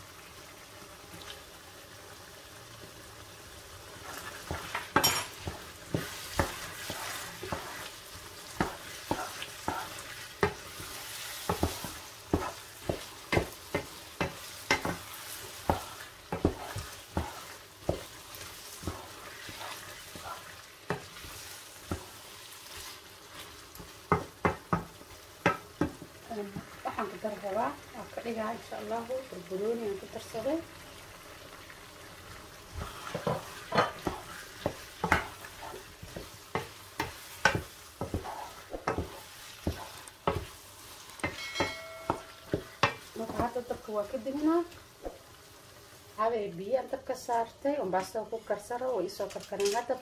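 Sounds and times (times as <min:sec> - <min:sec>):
meat and potatoes sizzling in a pan: 0:00.0 - 0:50.0
wooden spoon scraping a pan: 0:04.0 - 0:27.4, 0:32.7 - 0:45.2.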